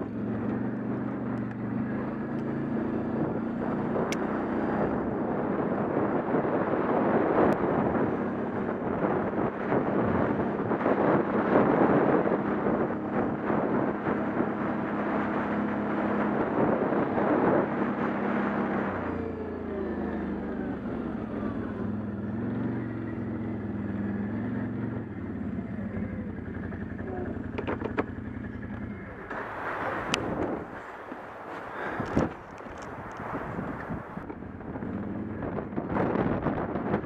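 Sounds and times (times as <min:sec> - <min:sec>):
wind on microphone: 0:00.0 - 0:26.3, 0:28.6 - 0:37.0
quad bike engine running: 0:00.0 - 0:37.0.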